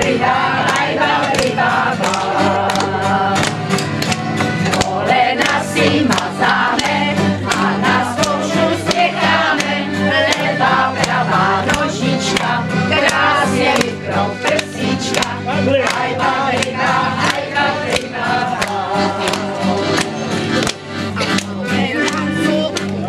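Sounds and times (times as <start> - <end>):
women singing in chorus: 0.0 - 3.6, 4.6 - 19.9
steady clicking beat: 0.0 - 23.0.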